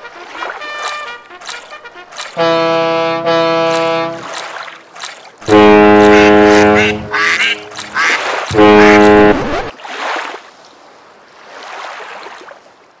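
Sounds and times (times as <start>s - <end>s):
ship's horn blast: 0.0s - 4.4s, 5.4s - 9.7s.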